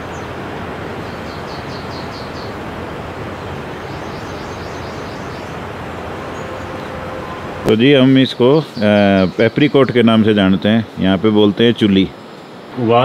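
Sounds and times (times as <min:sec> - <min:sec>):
small bird chirping: 0:00.0 - 0:02.6, 0:03.3 - 0:07.4
steady rushing noise: 0:00.0 - 0:13.0.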